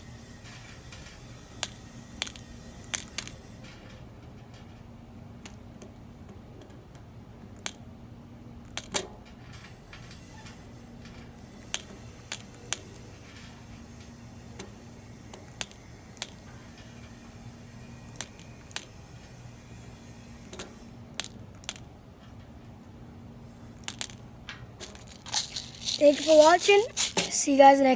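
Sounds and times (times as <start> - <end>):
steady low hum: 0.0 - 27.9.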